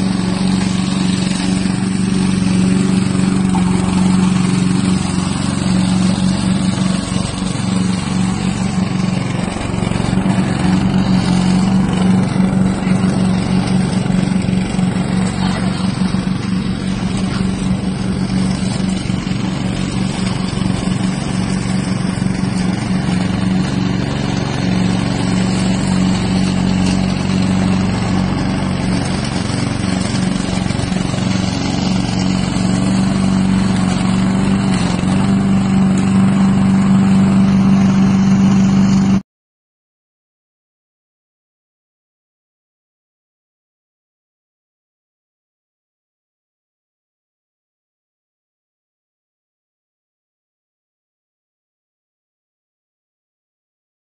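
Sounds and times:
mower engine running: 0:00.0 - 0:39.2.

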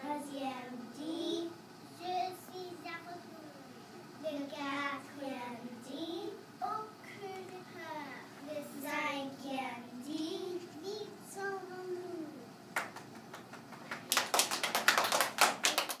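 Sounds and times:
children applauding: 0:12.8 - 0:16.0.

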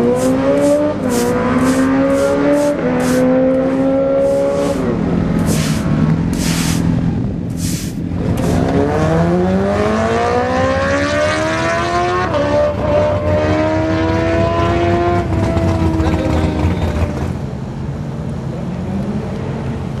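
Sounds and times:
motorcycle engine accelerating: 0:00.0 - 0:06.4, 0:08.1 - 0:17.4.

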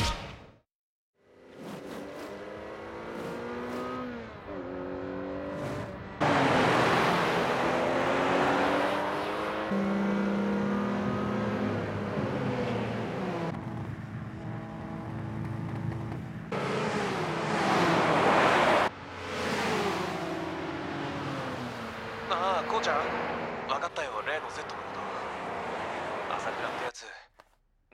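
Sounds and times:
sports car engines revving: 0:01.2 - 0:26.9
wind and road noise: 0:01.2 - 0:27.6.

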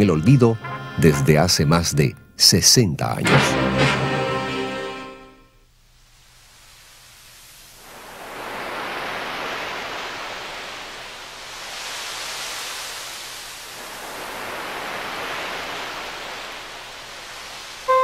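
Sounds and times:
sea waves washing in: 0:06.0 - 0:18.0.

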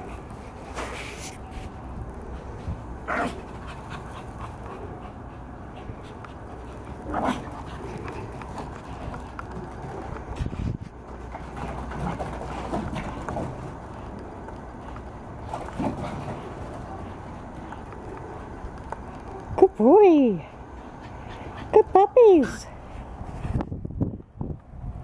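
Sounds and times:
dogs scuffling: 0:05.9 - 0:19.6.

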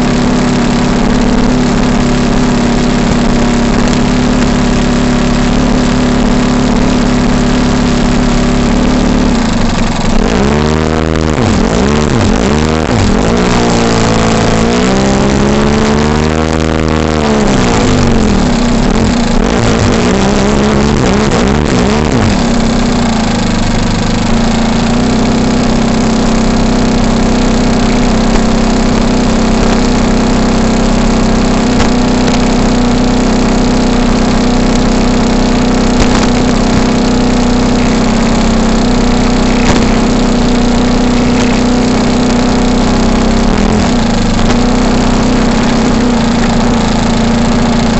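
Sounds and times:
model airplane engine revving: 0:00.0 - 0:47.9.

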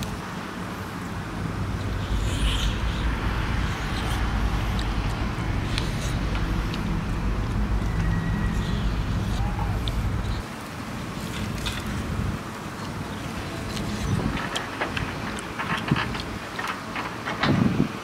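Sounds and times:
low engine hum: 0:00.0 - 0:17.4
eating clicks: 0:01.8 - 0:10.4.

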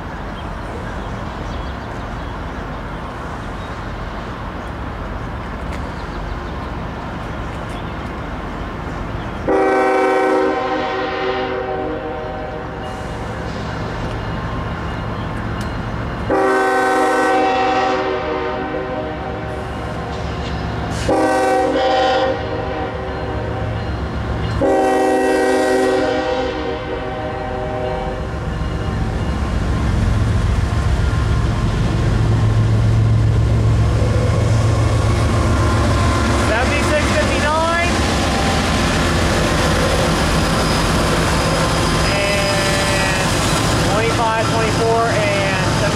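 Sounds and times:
diesel locomotive rumble: 0:00.0 - 0:45.9
train horn blasts: 0:09.5 - 0:12.8, 0:16.3 - 0:19.6, 0:21.0 - 0:23.8, 0:24.5 - 0:28.3.

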